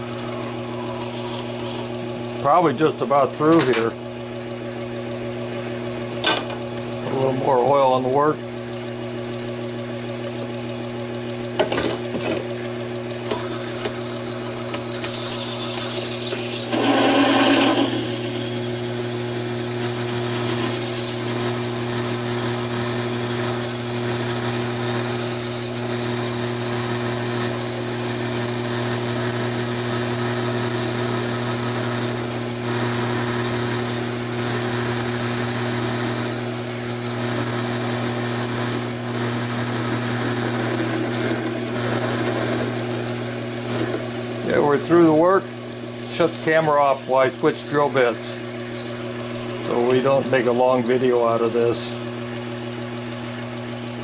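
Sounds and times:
lathe humming: 0:00.0 - 0:54.0
drill scraping into steel: 0:13.2 - 0:25.8, 0:36.2 - 0:52.1.

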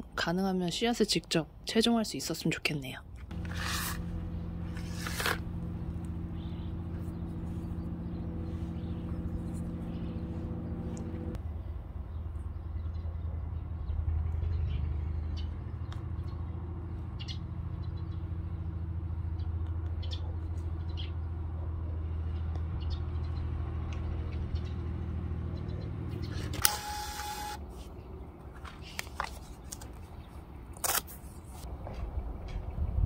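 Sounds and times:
low motor hum: 0:03.2 - 0:28.4.

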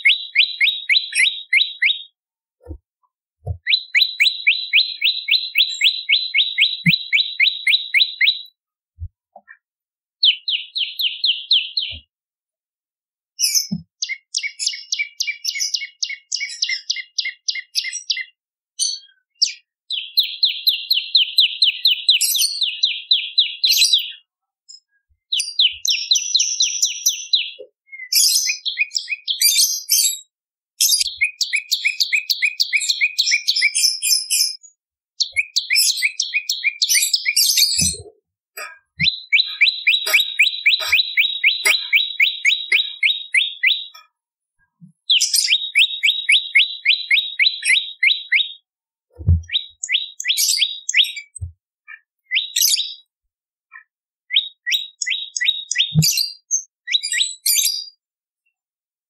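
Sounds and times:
songbird rattling trills: 0:38.6 - 0:43.8.

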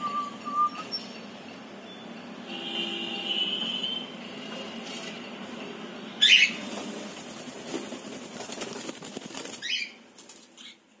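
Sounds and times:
wing flapping: 0:06.6 - 0:10.7.

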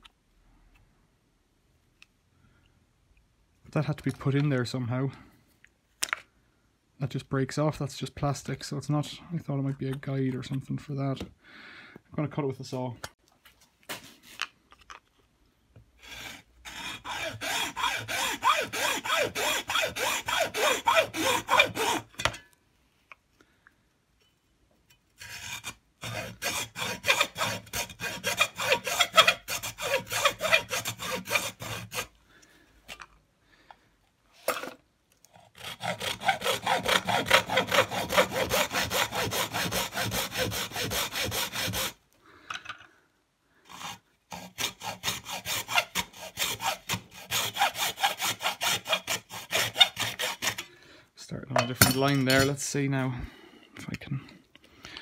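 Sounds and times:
hacksaw cutting plastic: 0:16.0 - 0:22.4, 0:25.1 - 0:32.2, 0:34.4 - 0:42.0, 0:43.6 - 0:50.7.

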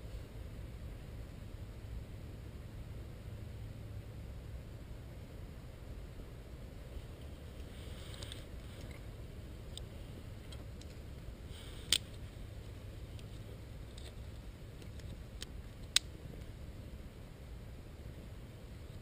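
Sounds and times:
low background rumble: 0:00.0 - 0:19.0
dry twigs clicking and snapping: 0:14.8 - 0:16.1.

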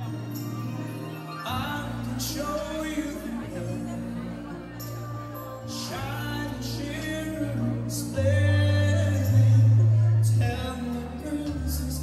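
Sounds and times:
bass line: 0:00.0 - 0:12.0
person singing: 0:00.0 - 0:12.0.

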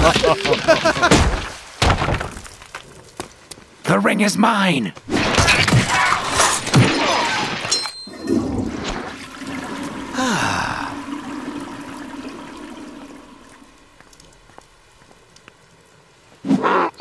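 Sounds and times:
cartoon brawl scuffle: 0:00.0 - 0:02.4, 0:05.0 - 0:07.8
short falling cries: 0:10.1 - 0:11.2.

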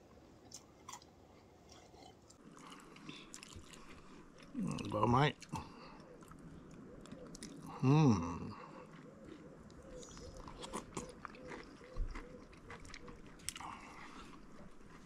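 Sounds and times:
man chewing and crunching: 0:00.4 - 0:15.0
man humming mmm: 0:07.7 - 0:08.7.

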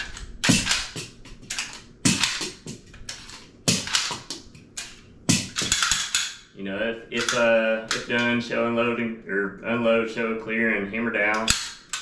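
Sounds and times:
metallic pistol clacks: 0:00.0 - 0:06.5, 0:07.2 - 0:08.3, 0:11.3 - 0:12.0.

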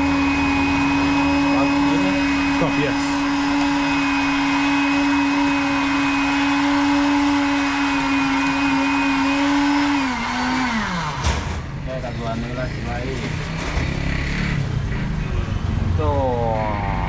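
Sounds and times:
electric blender running: 0:00.0 - 0:11.5.

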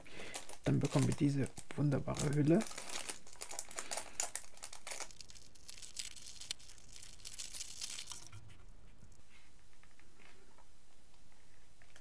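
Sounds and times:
plastic wrap crinkling: 0:00.2 - 0:08.4.

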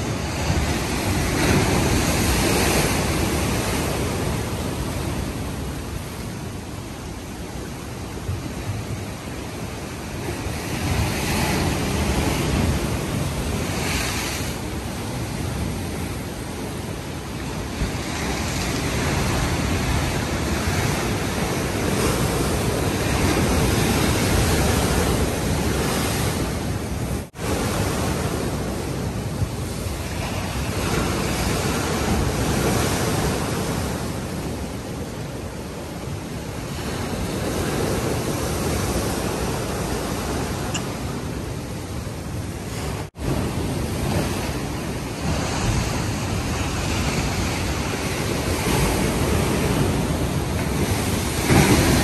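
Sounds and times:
waves breaking against seawall: 0:00.0 - 0:04.6, 0:42.7 - 0:52.0.

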